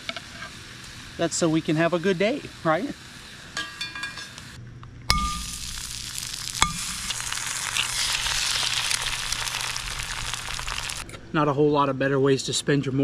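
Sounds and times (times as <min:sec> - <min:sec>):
food sizzling in a pan: 0:00.0 - 0:11.0
metal clink: 0:03.6 - 0:04.4.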